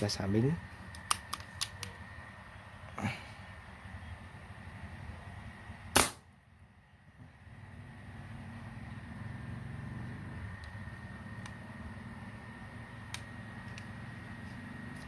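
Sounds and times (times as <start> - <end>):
silenced air rifle shot: 5.9 - 6.3.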